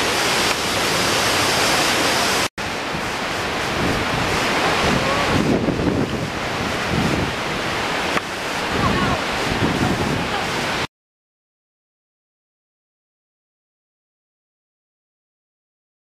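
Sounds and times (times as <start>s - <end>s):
waterfall roaring: 0.0s - 10.9s.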